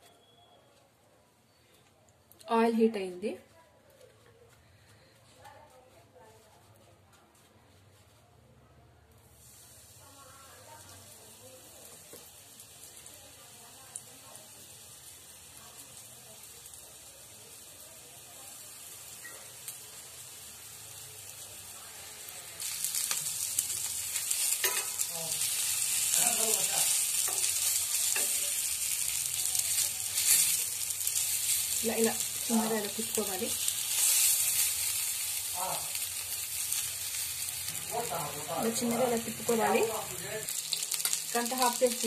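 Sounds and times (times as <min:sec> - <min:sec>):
fish sizzling in hot oil: 0:09.2 - 0:42.0.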